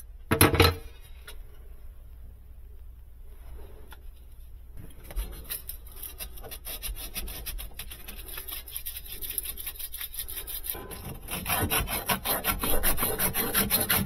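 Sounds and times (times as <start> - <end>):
scratchy rubbing on plastic: 4.1 - 14.0.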